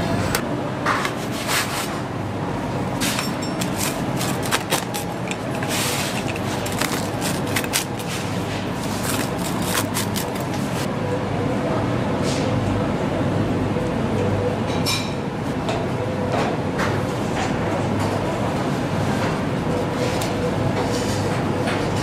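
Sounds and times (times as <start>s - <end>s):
pizza cutter scraping crust: 3.0s - 10.9s.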